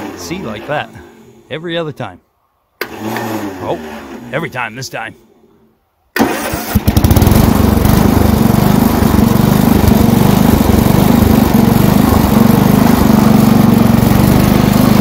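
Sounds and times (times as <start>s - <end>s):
tractor engine running: 6.2s - 15.0s.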